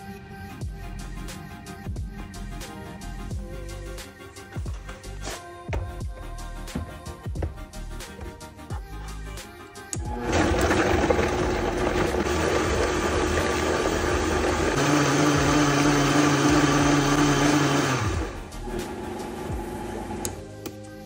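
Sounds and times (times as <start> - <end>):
blender motor running: 10.0 - 20.4.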